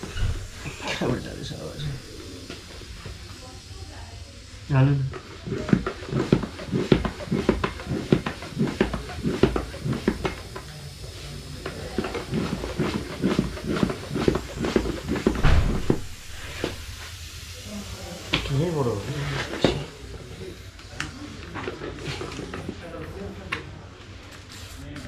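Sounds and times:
hands rubbing bicycle tyre: 5.2s - 10.7s, 11.6s - 17.2s.

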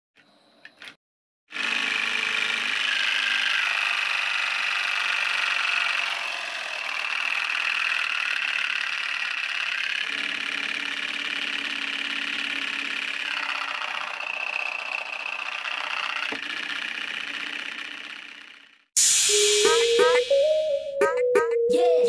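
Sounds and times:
small engine model whirring: 1.5s - 18.9s.

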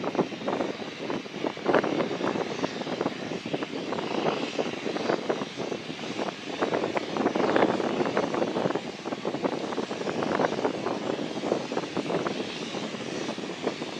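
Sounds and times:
turboprop engines droning: 0.0s - 13.9s.

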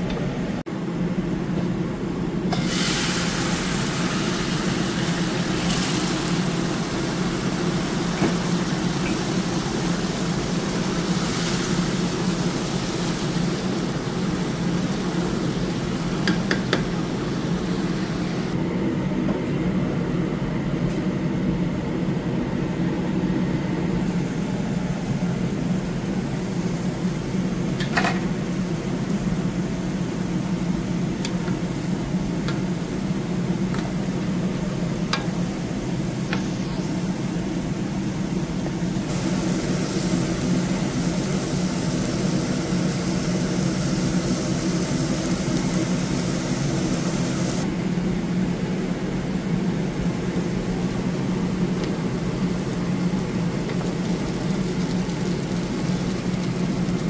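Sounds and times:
hiss: 2.5s - 18.6s, 39.0s - 47.7s.

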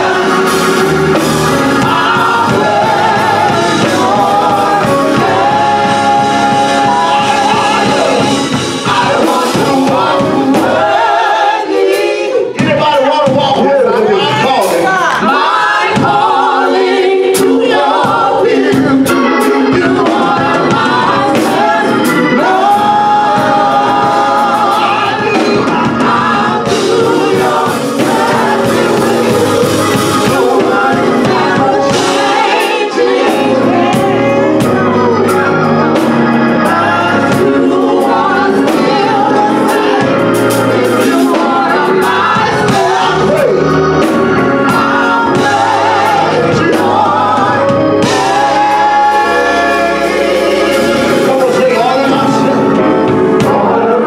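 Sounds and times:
drums with cymbals: 0.0s - 11.2s, 11.9s - 53.8s
electric keyboard: 0.0s - 54.0s
organ: 0.0s - 54.0s
person singing: 18.5s - 54.0s.

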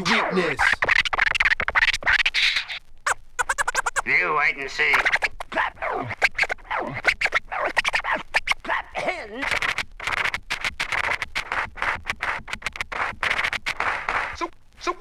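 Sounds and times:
rapping: 0.0s - 0.8s, 4.6s - 6.2s
turntable scratching: 0.0s - 15.0s.

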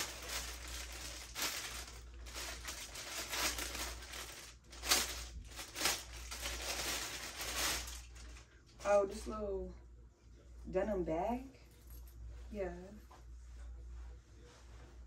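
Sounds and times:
packaging rustling and crinkling: 0.0s - 8.5s.

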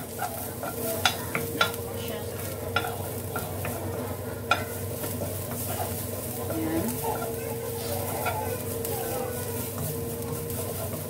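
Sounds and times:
spatula knocking against pan: 0.0s - 1.8s, 2.4s - 3.8s, 4.4s - 5.9s, 8.1s - 9.4s
garlic sizzling in oil: 0.0s - 11.0s
spatula stirring in pan: 0.0s - 11.0s.

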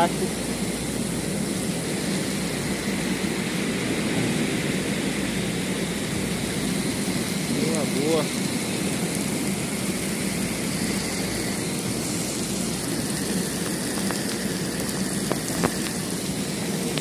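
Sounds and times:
heavy rain on pavement: 0.0s - 17.0s
sharp ticks: 12.8s - 16.1s.

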